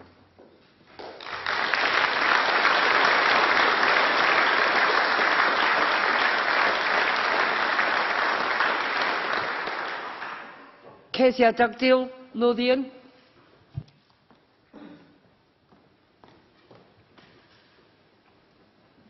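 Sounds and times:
crowd applauding: 0:01.0 - 0:10.8.

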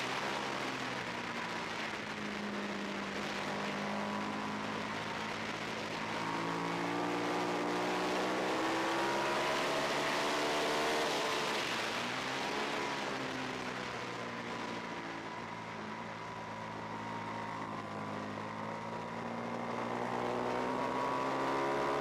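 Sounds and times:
motorcycle engine: 0:00.0 - 0:13.7.

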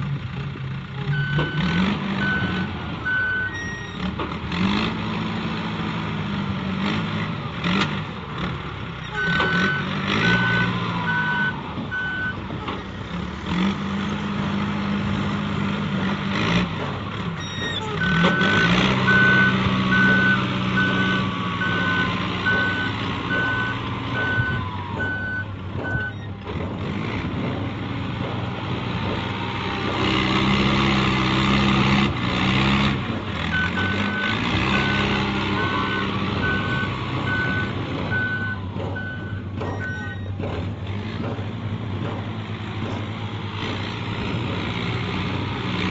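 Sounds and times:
diesel engine running: 0:00.0 - 0:45.9
reversing alarm beeping: 0:09.1 - 0:12.4, 0:17.4 - 0:26.4, 0:33.5 - 0:40.4.

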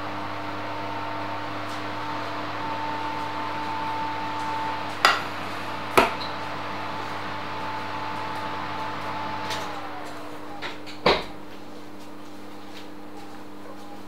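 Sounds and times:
fan oven humming: 0:00.0 - 0:14.0.

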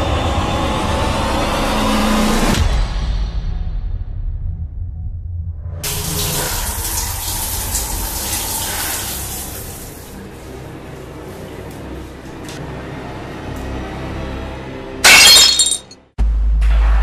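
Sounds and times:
water running hard: 0:05.9 - 0:10.2.

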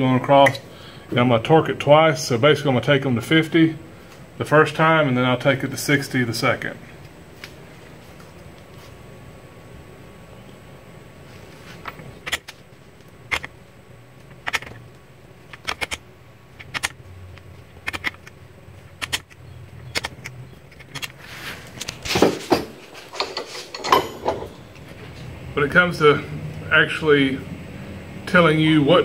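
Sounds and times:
metal clatter: 0:22.1 - 0:24.6.

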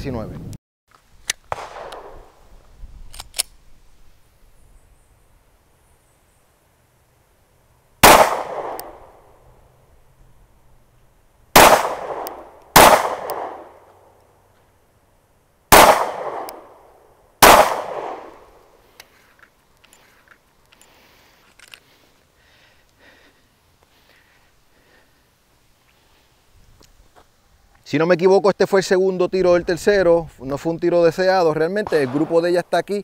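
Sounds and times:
pistol shots with echo: 0:01.5 - 0:02.3, 0:08.0 - 0:09.2, 0:11.6 - 0:13.8, 0:15.7 - 0:16.8, 0:17.4 - 0:18.5, 0:31.8 - 0:32.6.

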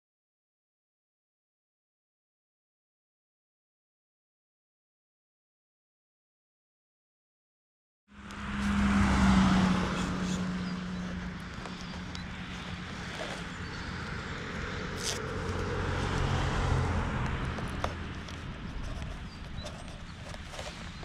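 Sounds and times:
low motor hum: 0:08.1 - 0:21.0.

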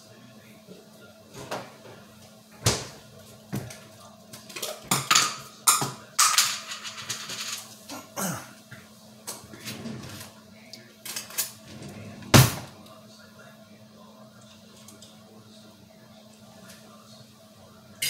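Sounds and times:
dishes knocking and clinking: 0:04.4 - 0:07.7.

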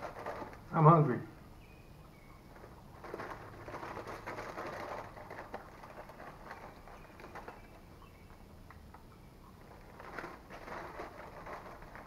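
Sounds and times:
food wrappers crinkling: 0:00.0 - 0:00.7, 0:02.5 - 0:07.8, 0:09.6 - 0:12.0.

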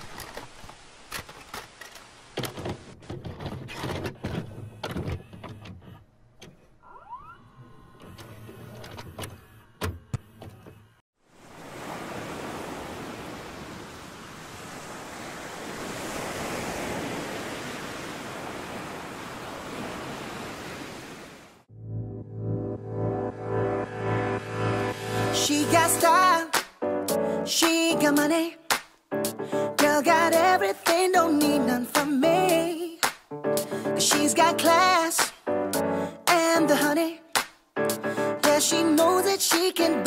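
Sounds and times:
ocean surf breaking on beach: 0:11.3 - 0:21.7.

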